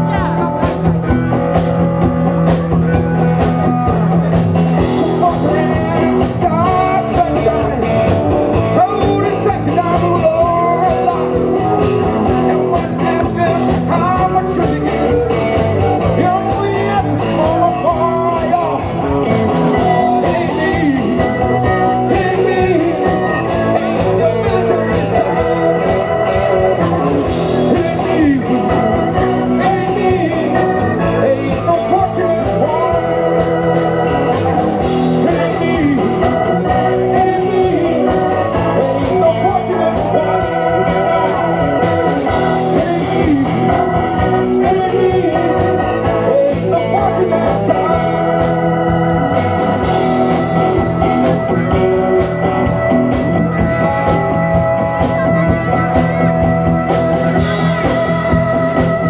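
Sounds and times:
rock and roll music: 0.0 - 59.0.

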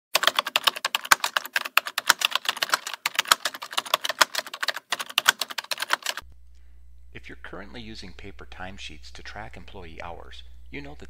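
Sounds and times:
rapid keystroke clicks: 0.1 - 6.2.

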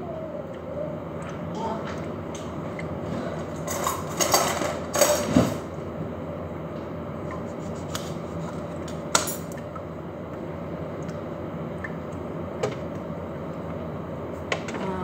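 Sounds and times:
steady background noise: 0.0 - 15.0
dishes and utensils clattering: 3.2 - 5.6.

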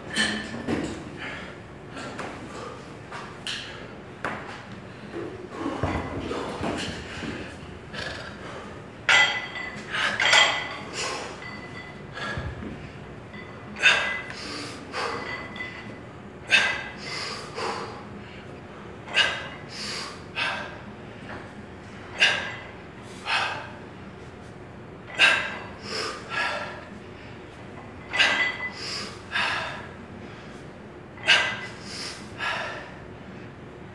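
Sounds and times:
person breathing hard: 16.5 - 18.6, 28.7 - 30.6.

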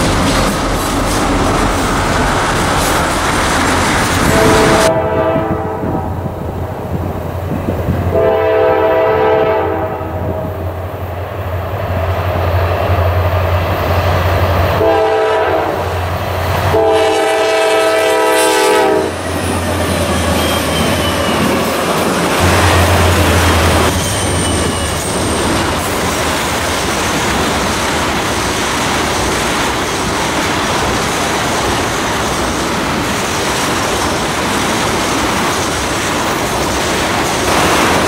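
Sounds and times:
locomotive engine rumble: 0.0 - 9.0, 15.8 - 38.0
train rail noise: 0.0 - 38.0
train air horn blasts: 4.2 - 6.2, 8.1 - 10.6, 14.8 - 16.0, 16.6 - 19.2.

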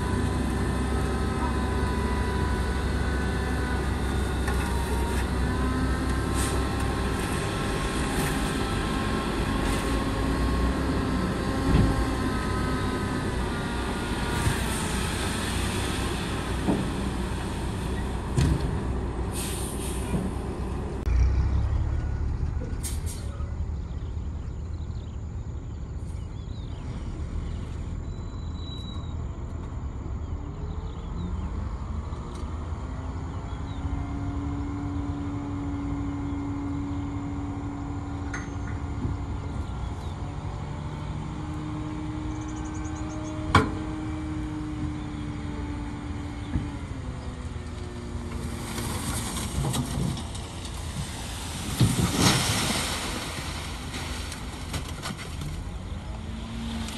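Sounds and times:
diesel truck engines running: 0.0 - 56.9
engine revving: 21.0 - 24.1.

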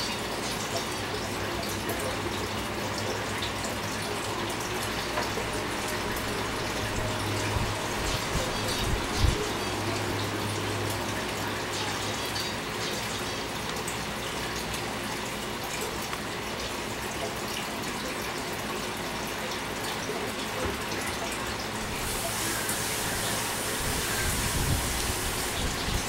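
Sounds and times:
steady rushing noise: 22.0 - 26.0.

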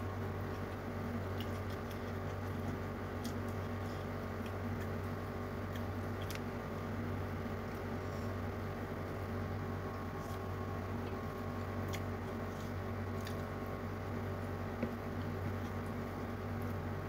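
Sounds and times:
steady low hum: 0.0 - 17.0
chewing: 0.4 - 6.5, 9.9 - 13.6.

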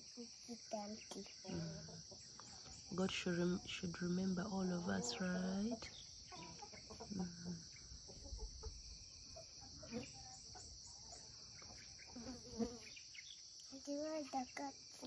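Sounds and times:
faint vocal sounds: 0.0 - 3.2
insects chorus: 0.0 - 15.0.

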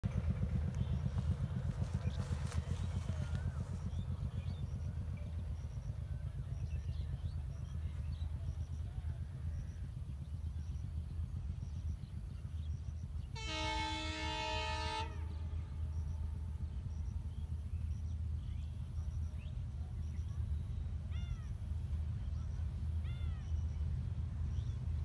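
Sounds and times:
steady low rumble: 0.0 - 25.0
distant train horn: 13.3 - 17.5.

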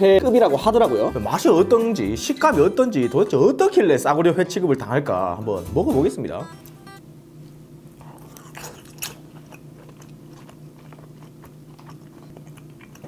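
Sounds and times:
wet mouth chewing clicks: 8.0 - 13.0.

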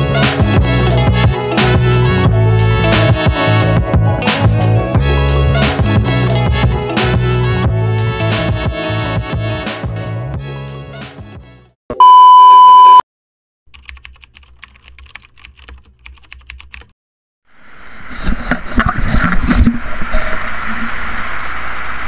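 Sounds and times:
intro music: 0.0 - 11.3
electronic beep: 11.9 - 13.0.

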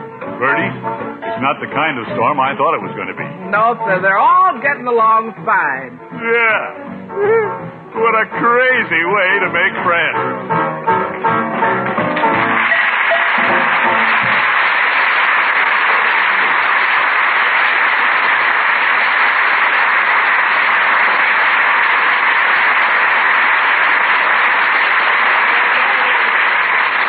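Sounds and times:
audience applauding on old radio: 8.0 - 10.2, 11.1 - 27.0.

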